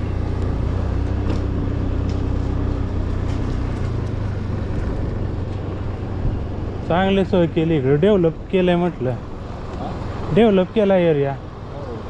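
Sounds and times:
wind and road noise: 0:00.0 - 0:12.0.

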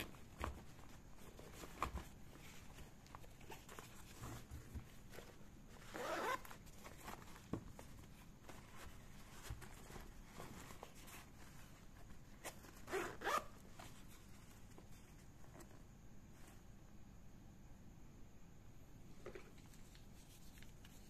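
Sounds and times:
bag zipper being pulled: 0:06.0 - 0:06.4, 0:12.9 - 0:13.5.

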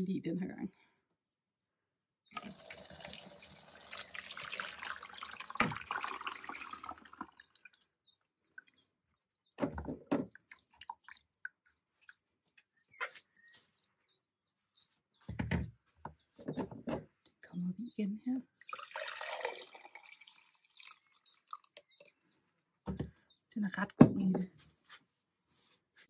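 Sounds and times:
dripping: 0:02.3 - 0:07.8, 0:10.2 - 0:12.6, 0:18.5 - 0:22.1
liquid pouring from a jar: 0:02.3 - 0:07.8, 0:10.2 - 0:12.3, 0:18.5 - 0:22.1.

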